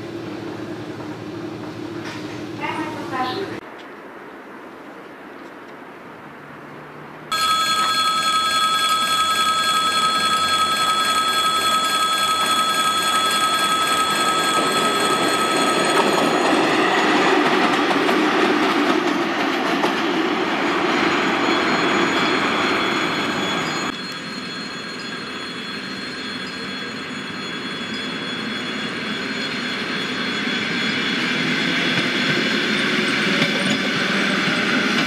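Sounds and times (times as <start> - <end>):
steady high ringing tone: 7.3 - 17.1, 21.0 - 33.9
train wheels on rails: 7.3 - 35.0.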